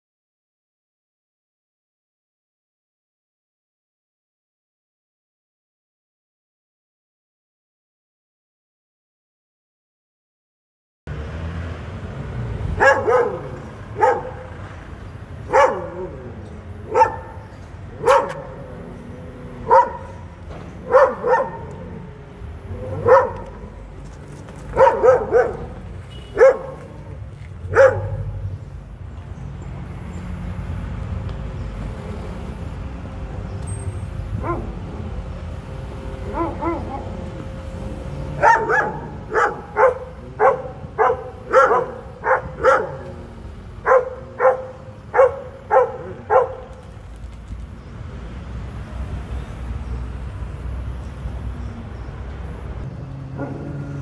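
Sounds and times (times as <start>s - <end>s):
dog barking: 12.8s - 14.6s, 15.5s - 16.3s, 16.9s - 17.4s, 18.0s - 18.6s, 19.6s - 20.2s, 20.8s - 21.8s, 22.8s - 23.6s, 24.7s - 27.0s, 27.7s - 28.4s, 34.4s - 34.8s, 36.3s - 37.1s, 38.4s - 43.1s, 43.8s - 46.8s, 53.4s - 53.7s.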